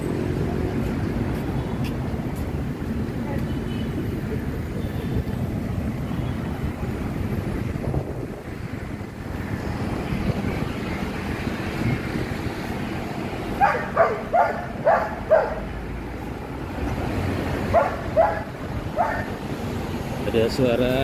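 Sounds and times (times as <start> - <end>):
dog barking: 13.6 - 15.7, 17.7 - 19.4.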